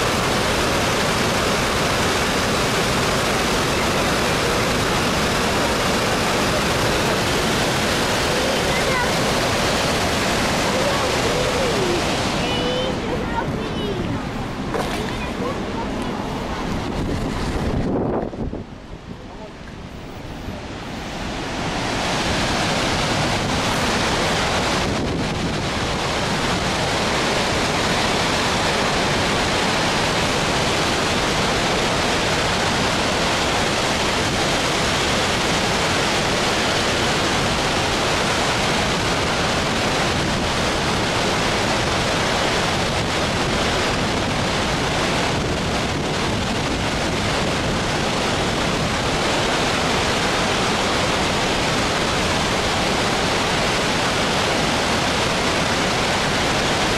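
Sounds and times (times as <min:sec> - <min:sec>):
floodwater rushing over weir: 0:00.0 - 0:56.9.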